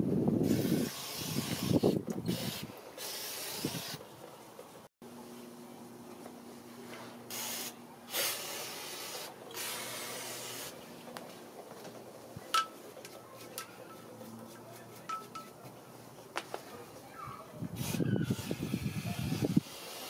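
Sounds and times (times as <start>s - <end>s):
aerosol spray can hissing: 7.3s - 10.8s.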